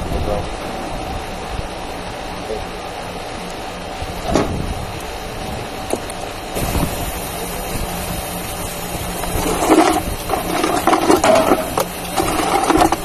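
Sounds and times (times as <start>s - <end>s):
steady low rumble: 0.0s - 13.0s
tools knocking and scraping: 9.5s - 13.0s.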